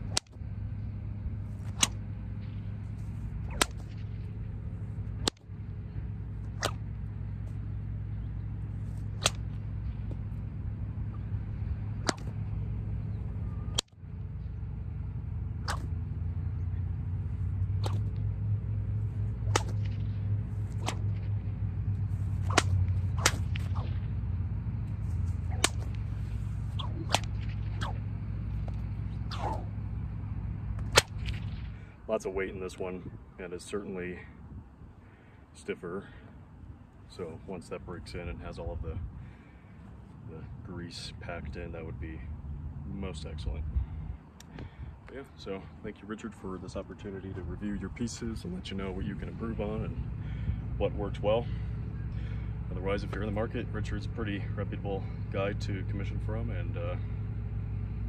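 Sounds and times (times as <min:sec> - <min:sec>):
bullwhip cracking: 0:00.0 - 0:00.4, 0:01.5 - 0:07.7, 0:08.6 - 0:10.4, 0:11.1 - 0:12.8, 0:13.5 - 0:14.0, 0:15.5 - 0:16.7, 0:17.6 - 0:29.9, 0:30.7 - 0:31.8.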